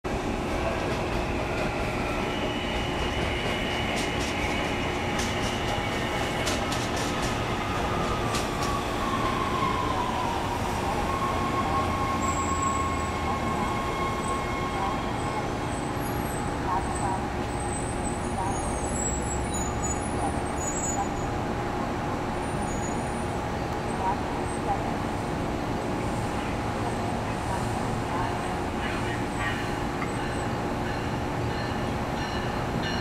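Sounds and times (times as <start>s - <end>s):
train wheels rumbling on rail: 0.1s - 33.0s
high wheel squeal: 11.4s - 16.4s.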